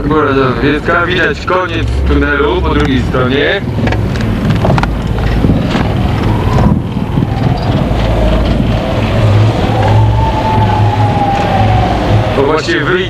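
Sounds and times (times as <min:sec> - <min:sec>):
vehicle engine and road noise: 0:00.0 - 0:13.0.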